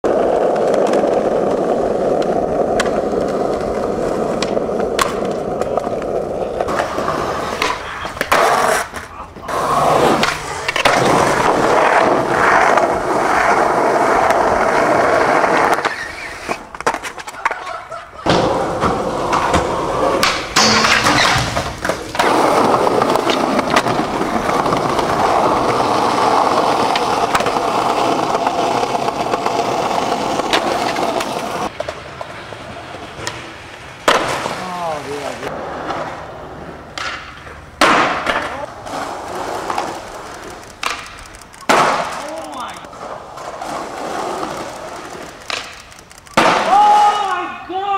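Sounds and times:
skateboard wheels rolling on concrete: 0:00.0 - 0:47.9
skateboard knocks: 0:00.4 - 0:09.1, 0:36.9 - 0:45.8.

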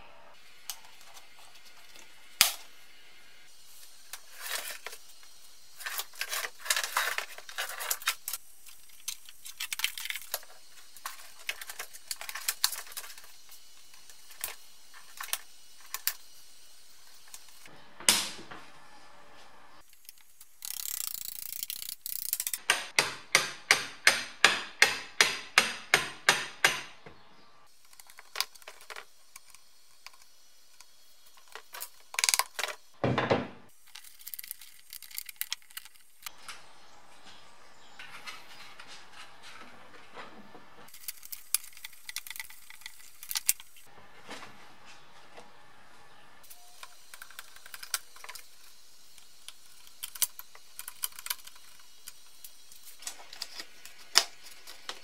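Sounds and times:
plastic connectors clicking: 0:33.9 - 0:36.4, 0:40.9 - 0:43.8, 0:49.2 - 0:55.0.

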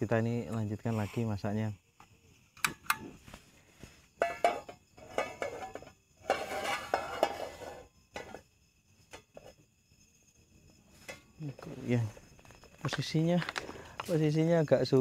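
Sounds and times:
metal frying pan clinking and scraping: 0:04.2 - 0:08.4.

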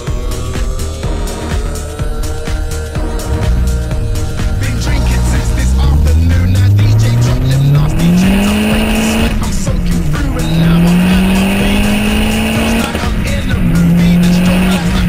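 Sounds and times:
car engine accelerating through gears: 0:03.2 - 0:15.0.

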